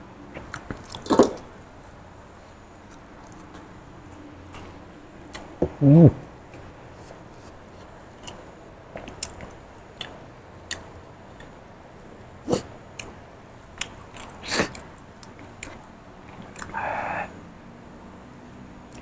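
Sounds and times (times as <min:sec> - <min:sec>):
man chewing with wet smacks: 0:00.3 - 0:02.0, 0:04.6 - 0:17.1.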